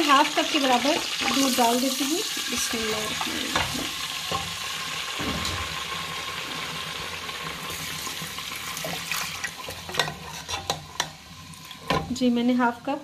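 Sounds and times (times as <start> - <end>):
liquid sizzling in hot oil: 0.0 - 13.0
metal spoon scraping pan: 2.8 - 4.5, 9.6 - 11.2.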